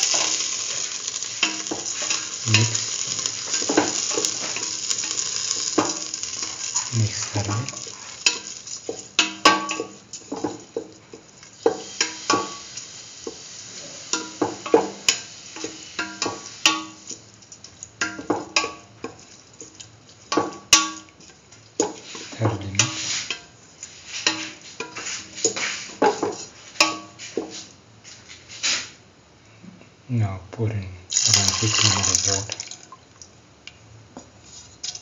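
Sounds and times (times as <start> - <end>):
spatula scraping a pan: 0.0 - 17.2, 21.2 - 27.7
spatula clinking on pan: 0.1 - 6.7, 7.8 - 11.0, 14.1 - 17.2, 26.1 - 27.2.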